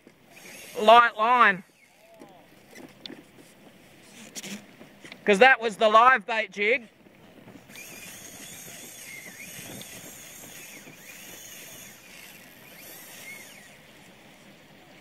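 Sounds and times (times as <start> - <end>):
fishing reel drag running: 0.3 - 4.7, 7.6 - 14.6.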